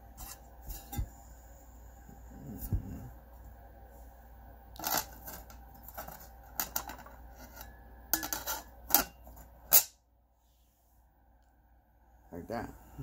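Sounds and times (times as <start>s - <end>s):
metal lid scraping and clicking: 4.8s - 9.9s.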